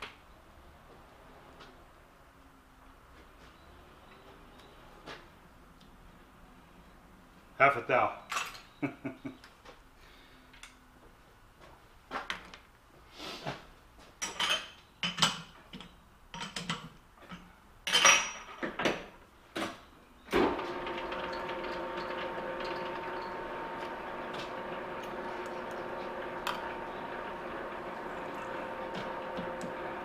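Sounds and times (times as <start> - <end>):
lathe running with hum: 20.4 - 30.0.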